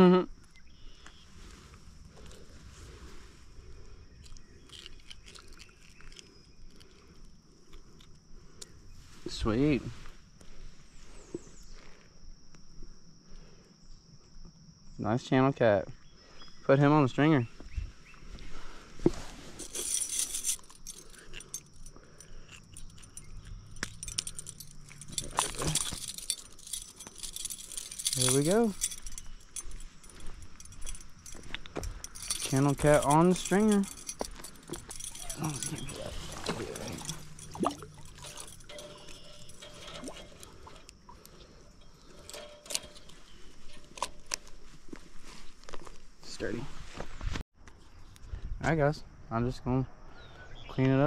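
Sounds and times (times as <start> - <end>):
scraping rustle: 19.0 - 46.1
metal chain clinking: 19.4 - 44.7
fishing tackle clicks and knocks: 19.6 - 44.6.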